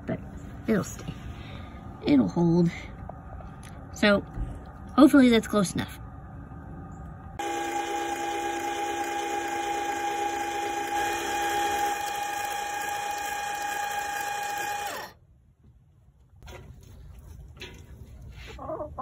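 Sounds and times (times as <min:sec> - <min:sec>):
actuator motor whining: 0:07.4 - 0:15.2.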